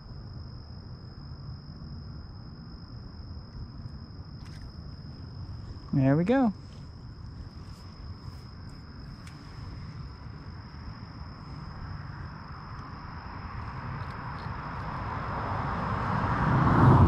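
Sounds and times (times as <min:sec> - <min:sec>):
vehicle passing on road: 0:07.0 - 0:17.0.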